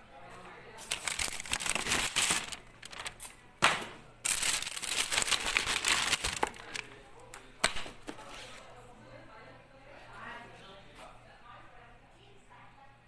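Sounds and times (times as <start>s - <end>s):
plastic wrapping crinkling: 0.8s - 3.4s, 4.2s - 7.0s.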